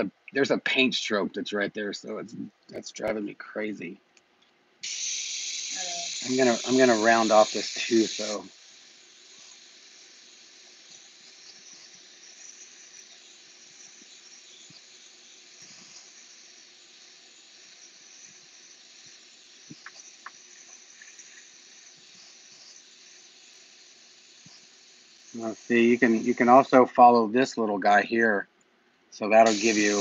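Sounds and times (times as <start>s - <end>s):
airbrush hissing: 4.8s - 28.0s, 29.2s - 30.0s.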